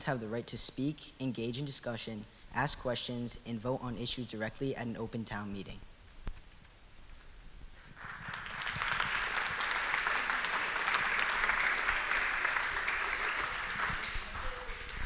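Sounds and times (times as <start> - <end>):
audience applauding: 8.0 - 15.0.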